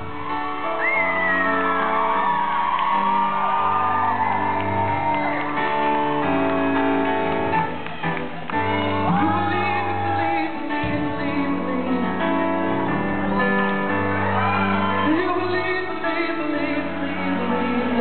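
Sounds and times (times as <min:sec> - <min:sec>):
live band with keyboards: 0:00.0 - 0:18.0
person singing: 0:08.6 - 0:14.0, 0:14.9 - 0:18.0.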